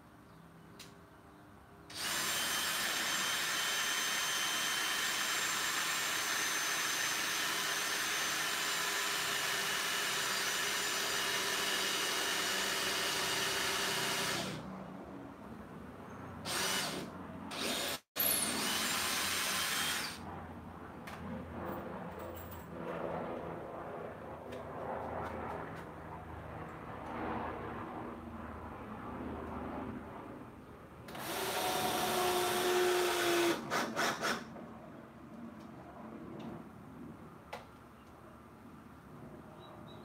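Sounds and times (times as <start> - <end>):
power drill drilling into wood: 1.9 - 14.6, 16.5 - 20.2, 31.1 - 34.4.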